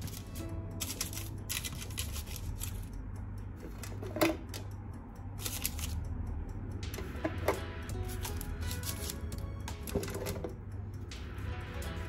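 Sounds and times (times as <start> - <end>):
utensils and dishes clattering: 0.0 - 2.9, 3.6 - 4.6, 7.0 - 10.5.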